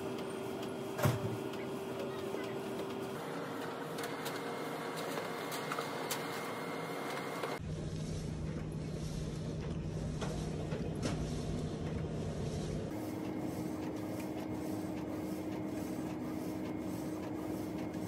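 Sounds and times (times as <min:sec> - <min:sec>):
inkjet printer running: 0:00.0 - 0:07.6, 0:12.9 - 0:18.0.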